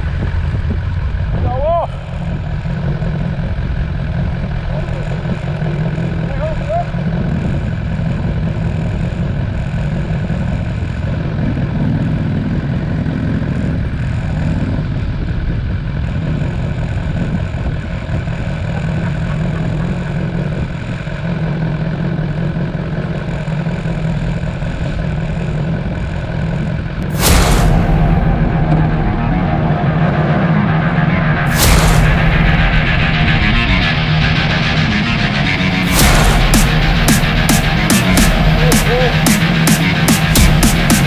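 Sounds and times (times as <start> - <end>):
motorcycle engine running: 0.0 - 41.0.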